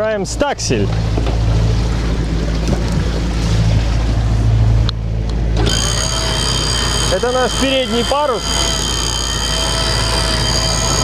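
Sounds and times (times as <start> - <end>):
water noise: 0.0 - 11.0
wind: 0.0 - 11.0
diesel engine droning: 0.1 - 11.0
electric winch whining: 5.4 - 11.0.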